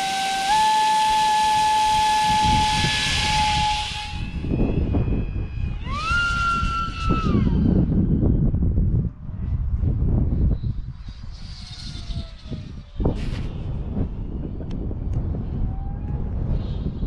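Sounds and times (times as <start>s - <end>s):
propeller hiss: 0.0s - 7.7s
electric motor high whine: 0.0s - 8.6s, 10.4s - 17.0s
wind rumbling on microphone: 0.0s - 17.0s.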